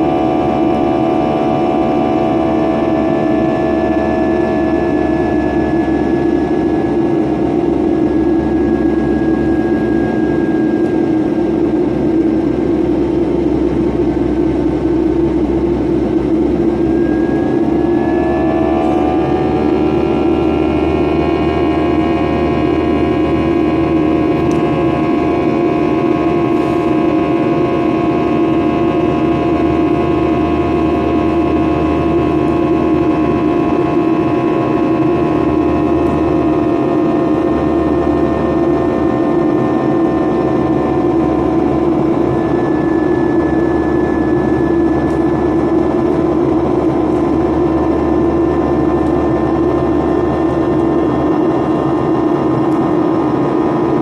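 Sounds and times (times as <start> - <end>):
jet engine drone in cabin: 0.0 - 54.0
whining engine tones: 0.0 - 54.0.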